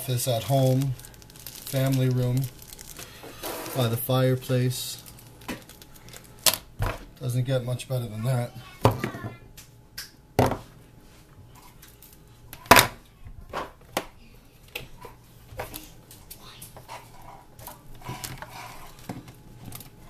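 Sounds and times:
rustling: 0.2 - 6.5.

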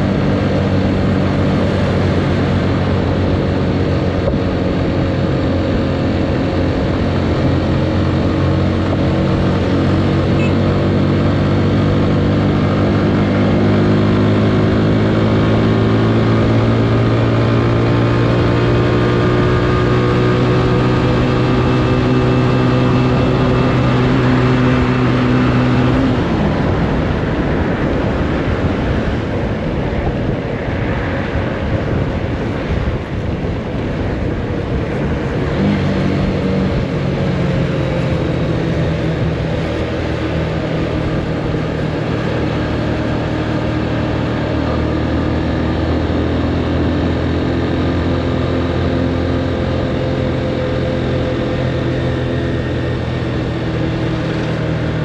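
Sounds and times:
motorcycle engine accelerating: 0.0 - 55.0
wind rushing past microphone: 20.9 - 47.4.

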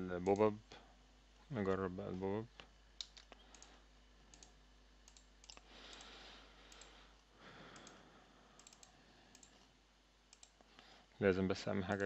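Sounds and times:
computer mouse and keyboard clicks: 3.0 - 6.1, 8.6 - 9.6, 10.3 - 10.7.

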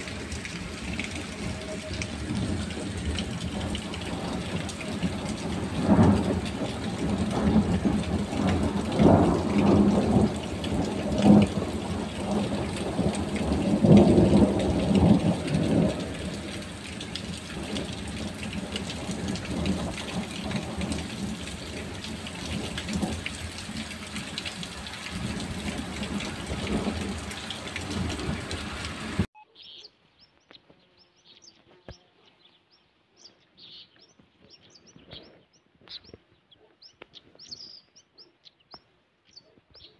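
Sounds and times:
heavy rain pouring on tiles: 0.0 - 29.3
thunder rumbling: 0.0 - 29.3
faint bird chirps: 29.3 - 39.9.

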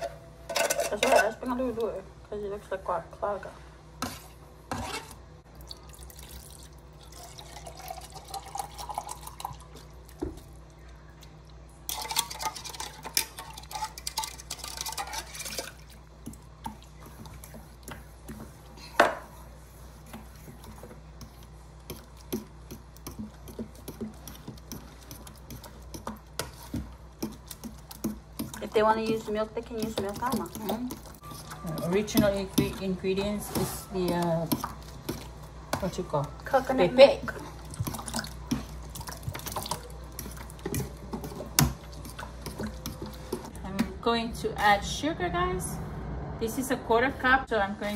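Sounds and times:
fork stirring liquid in a bowl: 11.9 - 18.7, 19.3 - 43.6.

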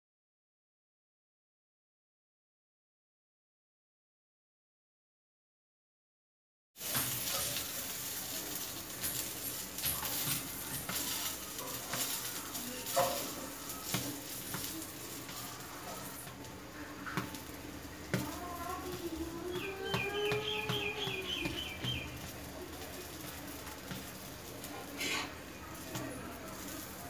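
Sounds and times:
metal spatula scraping pan: 6.8 - 16.3, 24.8 - 27.0
omelette sizzling in oil: 6.8 - 27.0.

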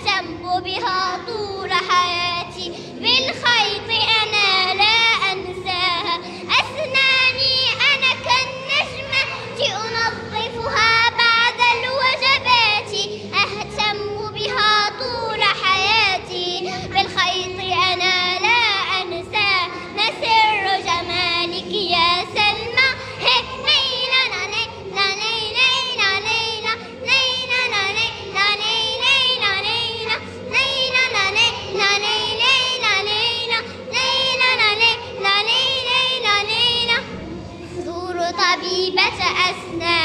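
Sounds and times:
girls singing: 0.0 - 40.0.

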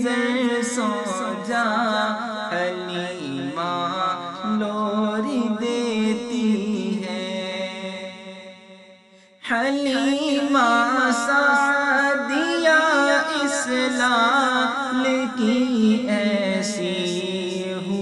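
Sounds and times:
layered a cappella voices: 0.0 - 8.0, 9.5 - 18.0.

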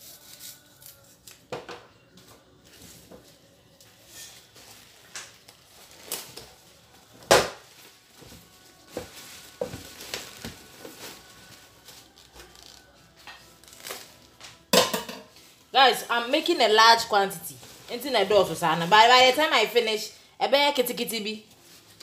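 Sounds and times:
leaves rustling: 7.6 - 12.6.

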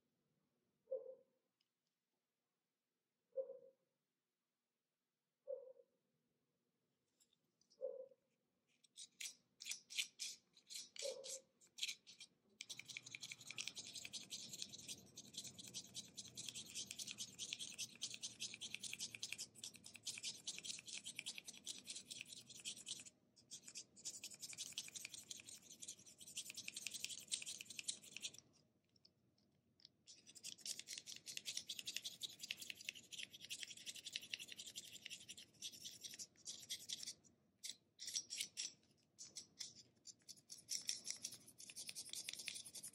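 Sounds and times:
knife blade scraping pencil: 8.7 - 28.5, 30.1 - 42.9.

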